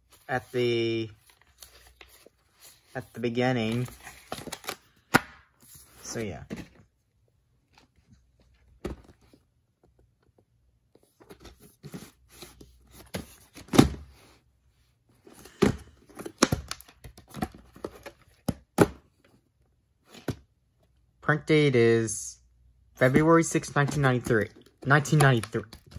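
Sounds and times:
plastic case clicks and rustles: 23.8s - 25.9s.

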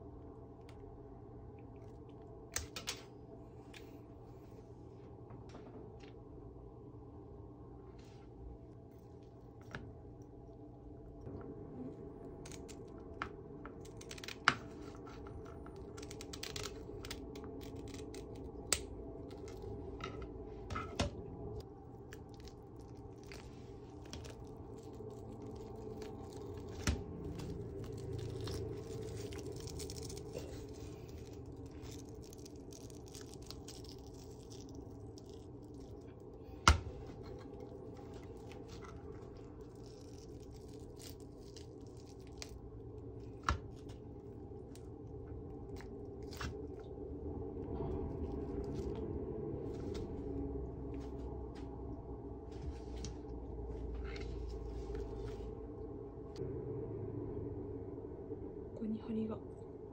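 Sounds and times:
fish skin tearing: 13.8s - 15.0s, 15.7s - 19.7s, 22.0s - 44.0s.

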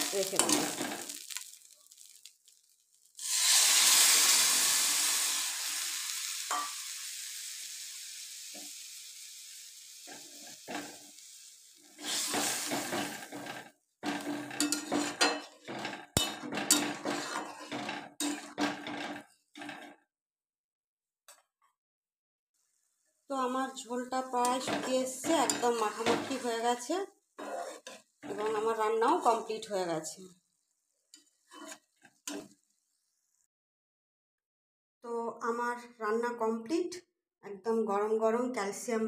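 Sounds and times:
metal spatula scraping pan: 0.0s - 2.2s, 11.9s - 19.9s, 24.3s - 26.6s, 27.4s - 29.5s, 31.2s - 32.6s
water hissing in hot pan: 0.0s - 17.5s.

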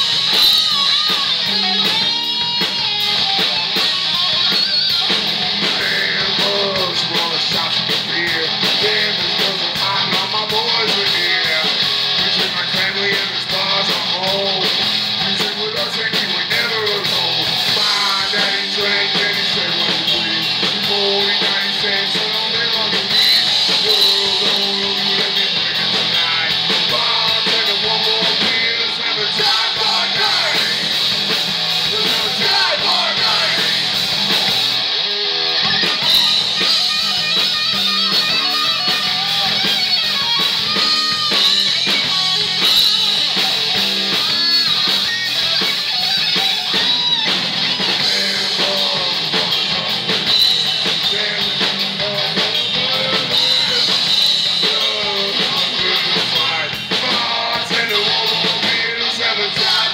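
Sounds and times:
bass guitar: 0.0s - 59.9s
distorted electric guitars: 0.0s - 59.9s
drum kit: 0.0s - 59.9s
person singing: 3.0s - 31.2s, 31.8s - 34.0s, 47.7s - 59.9s.

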